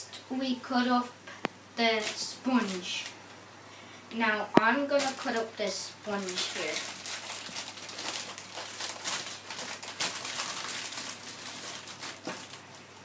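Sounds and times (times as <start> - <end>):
plastic packaging crinkling: 2.0 - 3.2, 4.9 - 5.5, 6.1 - 13.0.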